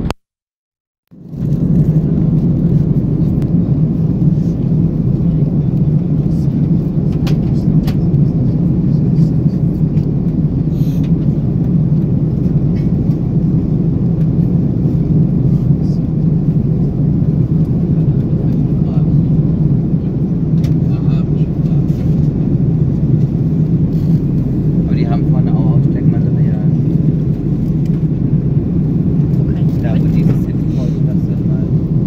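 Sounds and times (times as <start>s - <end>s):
airplane cabin rumble: 1.1s - 32.0s.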